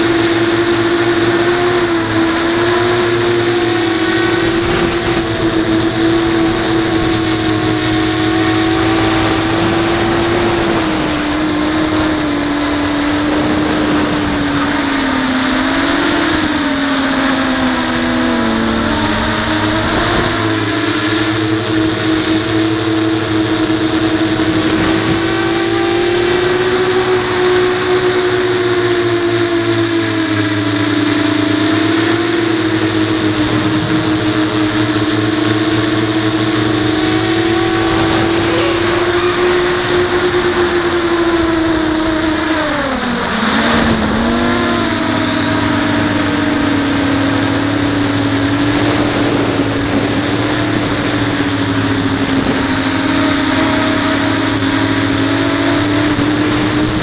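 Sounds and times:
quadcopter motors whining: 0.0s - 57.0s.

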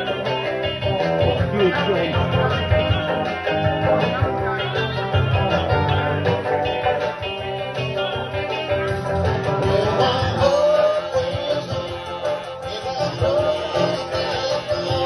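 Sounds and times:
rock guitar backing: 0.0s - 15.0s
man singing into microphone: 9.6s - 15.0s.

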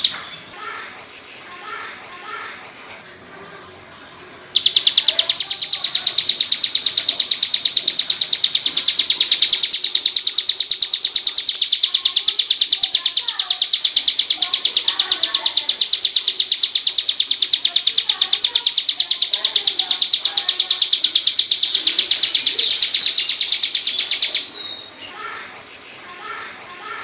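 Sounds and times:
bird singing high chirps: 0.0s - 0.4s, 4.6s - 25.1s.

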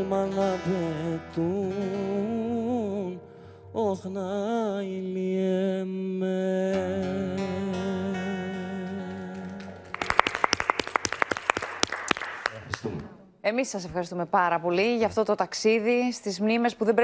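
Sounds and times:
classical guitar: 0.0s - 4.1s, 6.6s - 10.1s
man singing: 0.0s - 9.9s
hands clapping: 9.0s - 13.2s.

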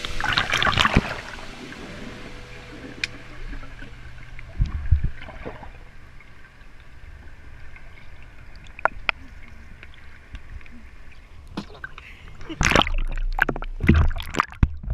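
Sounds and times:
muffled underwater rumble: 0.0s - 11.4s.

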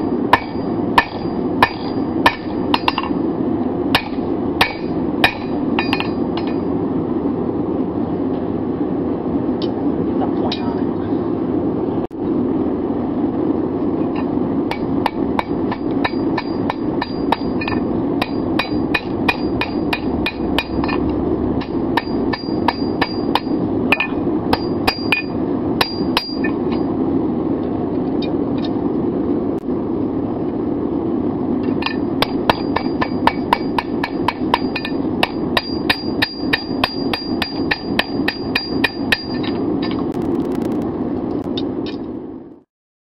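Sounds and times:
anvil ringing: 0.0s - 3.2s, 4.0s - 6.7s, 14.7s - 21.0s, 21.6s - 26.6s, 31.8s - 39.5s
hammer striking blade on anvil: 0.4s - 3.2s, 4.0s - 6.6s, 14.7s - 21.0s, 31.8s - 40.0s
low rushing noise: 11.2s - 37.1s, 39.7s - 42.6s.

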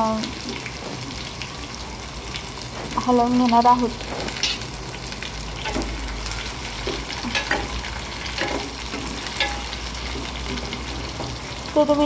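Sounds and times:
spices sizzling in hot oil: 0.0s - 12.0s
steel spoon scraping a pan: 7.3s - 11.0s.

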